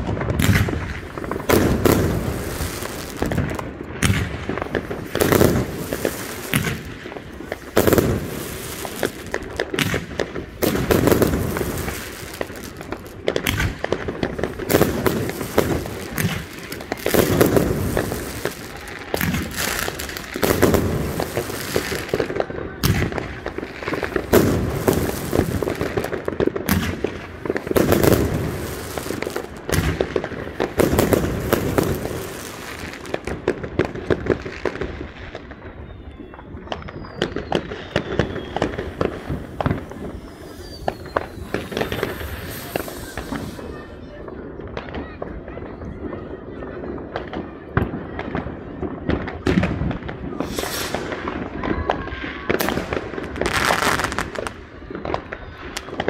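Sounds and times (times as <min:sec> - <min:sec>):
fireworks bangs and crackling: 0:00.0 - 0:56.0
whistling fireworks: 0:00.0 - 0:56.0.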